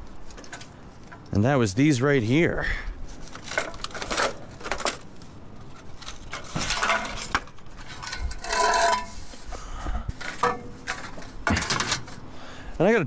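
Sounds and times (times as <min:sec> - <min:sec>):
metal scrap clinking: 0:05.8 - 0:09.4, 0:10.2 - 0:12.3.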